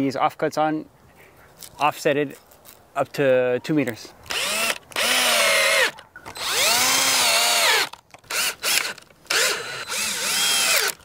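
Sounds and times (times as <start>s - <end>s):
cordless drill motor whine: 4.3s - 11.0s.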